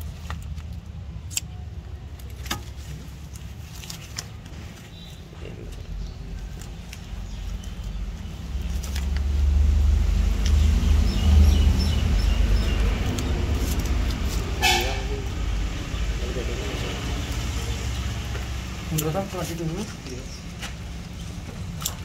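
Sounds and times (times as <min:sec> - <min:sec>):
horn toot: 0:14.6 - 0:15.3.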